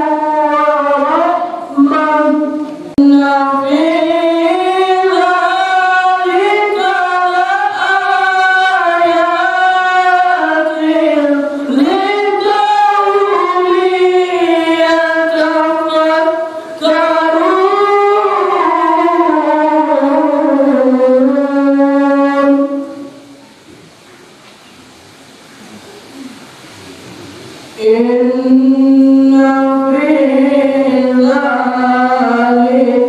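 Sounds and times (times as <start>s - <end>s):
man chanting melodic recitation: 0.0s - 23.2s.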